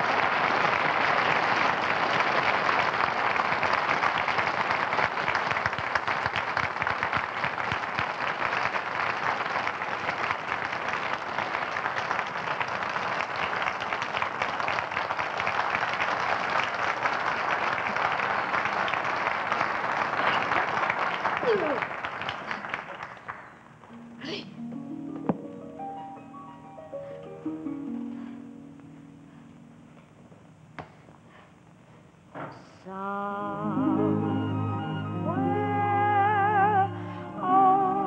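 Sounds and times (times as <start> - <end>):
audience applauding: 0.0 - 23.8.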